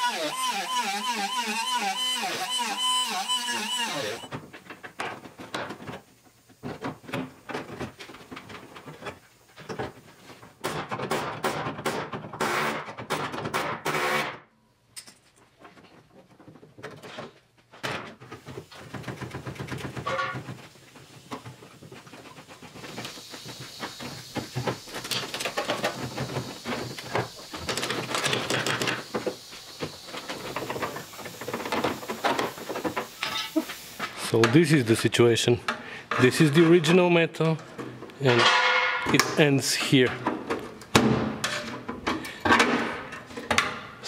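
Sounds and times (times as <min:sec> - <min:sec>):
air hiss: 0:22.6 - 0:34.4
metal clanks and scraping: 0:37.6 - 0:40.7, 0:41.3 - 0:44.0.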